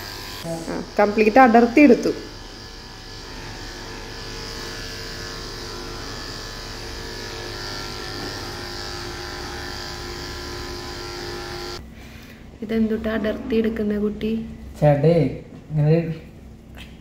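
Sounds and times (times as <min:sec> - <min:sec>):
electric clippers humming: 0:00.0 - 0:11.8.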